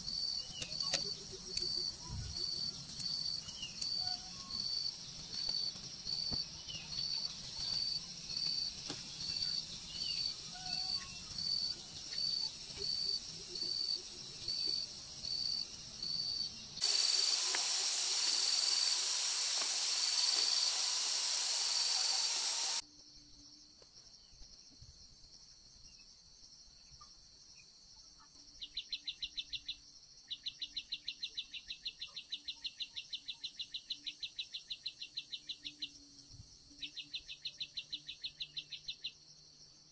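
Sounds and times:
loud steady hiss: 0.0s - 22.8s
insect chirping: 0.0s - 31.0s.

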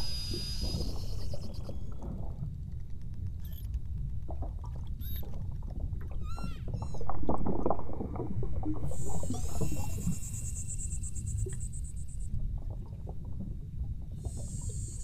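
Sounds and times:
high buzzing pulsed call: 0.0s - 2.0s, 8.9s - 12.3s
whale chirping whistles: 0.0s - 2.0s, 5.0s - 5.3s, 6.2s - 7.1s, 8.9s - 12.2s
whale clicking and creaking: 0.0s - 7.8s, 8.8s - 12.3s
low water rumble: 0.0s - 15.0s.

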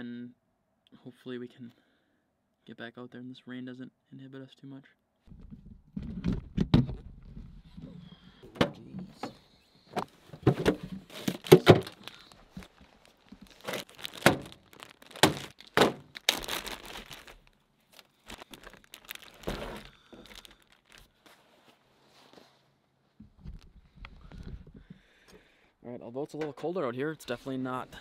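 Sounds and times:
plastic bag crinkling: 10.9s - 21.2s.

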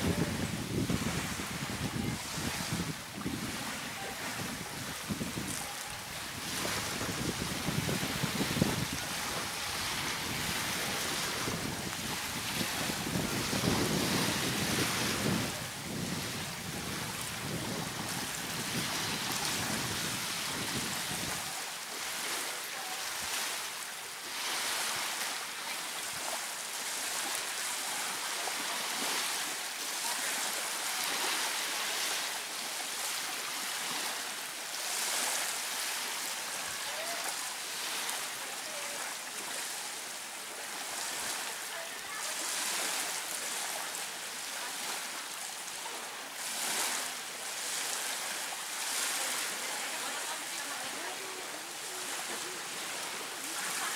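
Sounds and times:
wind rumble on microphone: 0.0s - 21.5s
small waves lapping on beach: 0.0s - 53.9s.

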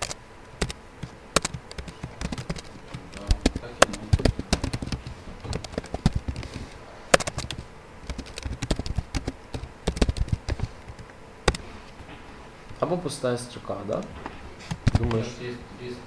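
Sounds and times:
keyboard typing clicks: 0.0s - 11.6s.

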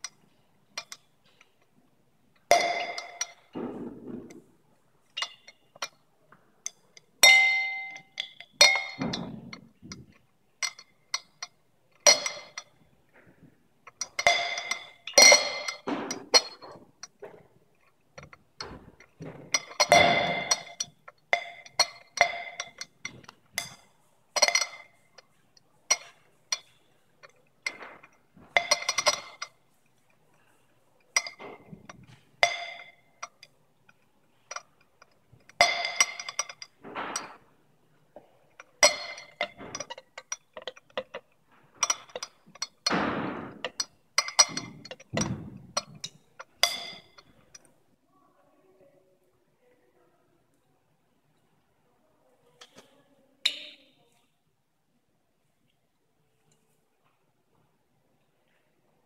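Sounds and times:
glassware clinking: 2.4s - 6.0s, 6.6s - 12.8s, 13.9s - 37.5s, 38.2s - 47.7s.

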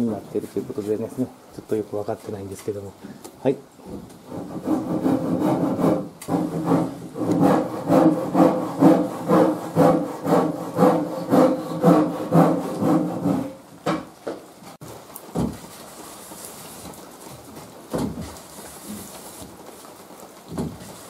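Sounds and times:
hand tool rubbing wood: 4.2s - 13.6s.

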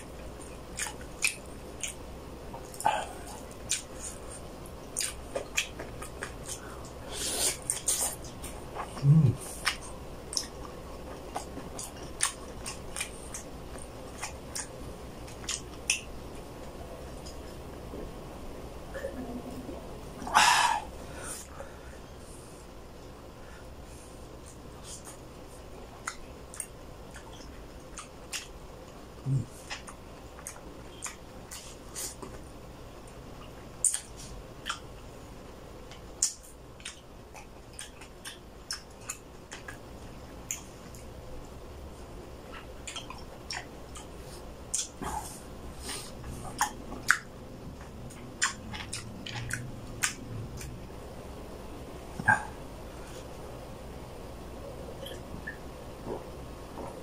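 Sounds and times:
close chewing: 0.0s - 17.8s, 24.4s - 32.4s, 35.9s - 41.1s, 42.4s - 50.9s.

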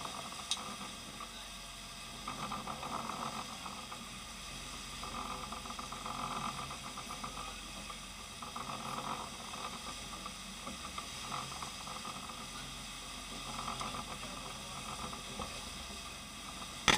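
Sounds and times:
boat engine hum: 0.0s - 16.9s
churning wake water hissing: 0.0s - 16.9s.

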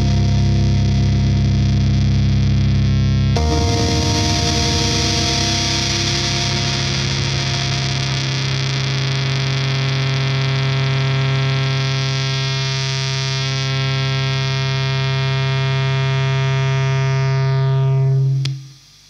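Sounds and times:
faint hum: 0.0s - 12.1s
distorted low electric guitar note: 0.0s - 18.8s
click: 18.4s - 18.6s.

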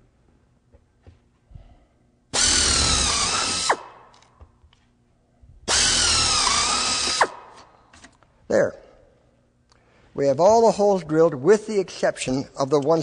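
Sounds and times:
electric drill whining: 2.3s - 3.9s, 5.7s - 7.4s.

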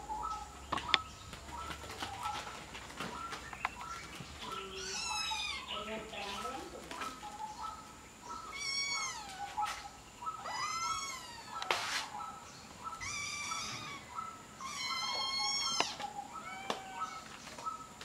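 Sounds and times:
kitten meowing: 8.5s - 9.3s, 10.4s - 11.6s, 13.0s - 14.0s, 14.6s - 17.2s
rustling: 11.5s - 12.3s.

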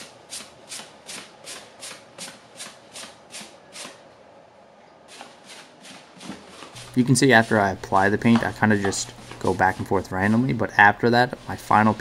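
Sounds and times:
paintbrush swishing on wood: 5.1s - 12.0s.

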